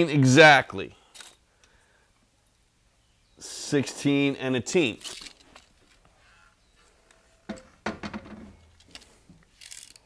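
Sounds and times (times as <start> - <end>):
metal level knocking and scraping: 7.4 - 9.0.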